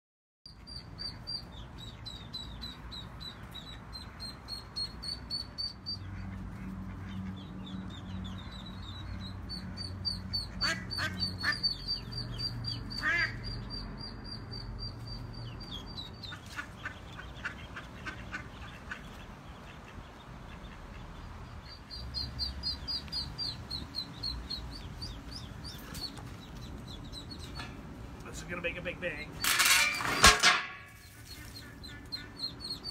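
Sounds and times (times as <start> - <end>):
ducklings peeping: 0.5 - 29.5, 31.0 - 32.9
duck quacking loudly: 10.3 - 11.8, 12.9 - 13.5.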